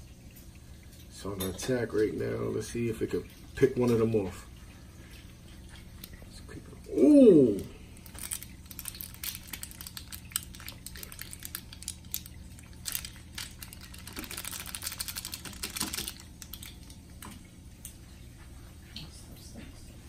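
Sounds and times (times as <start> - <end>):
air bubbles crackling in water: 0.0 - 18.1
aquarium equipment humming: 0.0 - 20.0.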